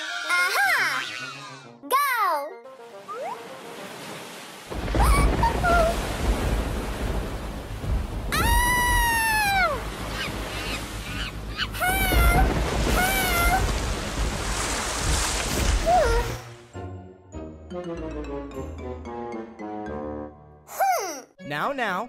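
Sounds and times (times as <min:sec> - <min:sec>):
pool water rushing and splashing: 0:02.8 - 0:16.6
long falling high wail: 0:08.3 - 0:09.8.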